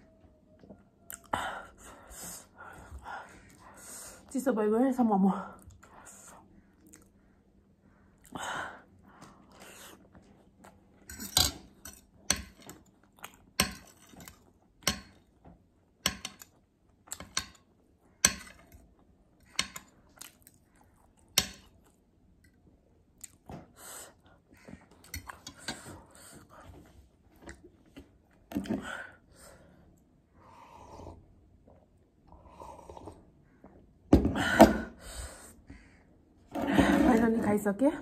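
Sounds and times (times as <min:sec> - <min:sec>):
close chewing with mouth smacks: 0:06.7 - 0:07.2, 0:12.8 - 0:13.6, 0:19.9 - 0:22.1.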